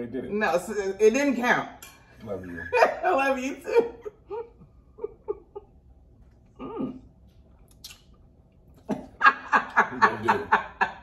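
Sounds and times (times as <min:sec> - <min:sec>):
person laughing: 0:08.9 - 0:11.0.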